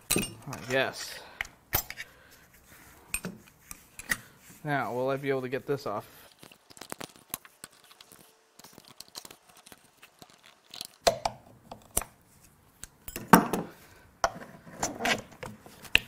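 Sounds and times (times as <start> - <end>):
metal tools clicking and clanking: 0.0 - 2.1, 3.1 - 3.4, 13.0 - 13.6.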